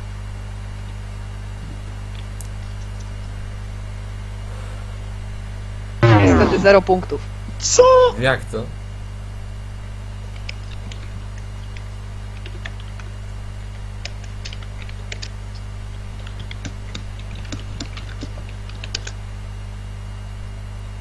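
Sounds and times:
low mains hum: 0:00.0 - 0:21.0
computer keyboard typing: 0:14.0 - 0:15.4, 0:16.2 - 0:19.2.

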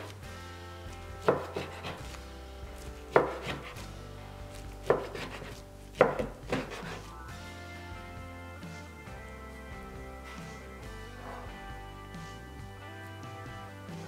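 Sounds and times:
knife scraping: 0:00.9 - 0:07.2
knife cutting onto plastic board: 0:01.3 - 0:02.2, 0:03.1 - 0:03.8, 0:04.8 - 0:07.0.

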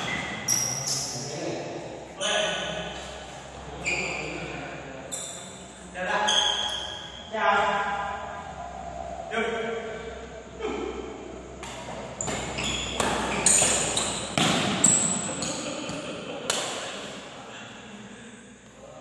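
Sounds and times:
rackets hitting shuttlecock: 0:11.6 - 0:17.2.

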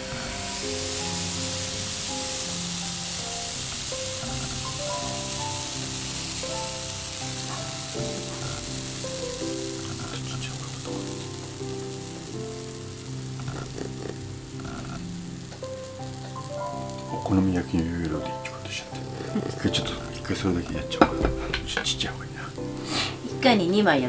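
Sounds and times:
batter sizzling in a frying pan: 0:00.0 - 0:24.0
simple stepping melody: 0:00.0 - 0:24.0.

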